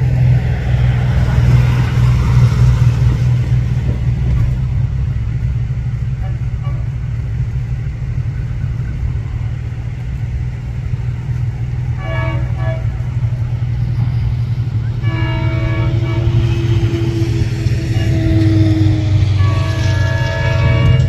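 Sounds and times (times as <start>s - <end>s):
low rumble: 0.0s - 21.0s
locomotive air horn blasts: 11.9s - 13.4s, 14.9s - 21.0s.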